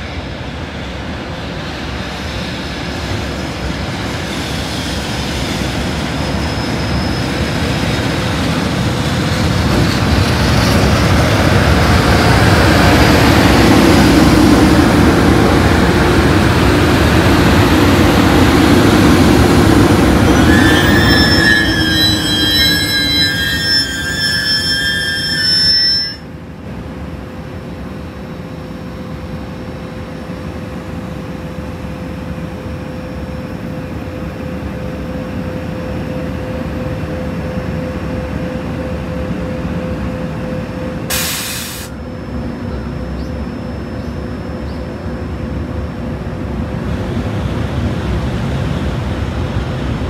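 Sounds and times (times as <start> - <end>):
high whining tones: 19.7 - 26.3
short sharp hiss: 41.1 - 42.0.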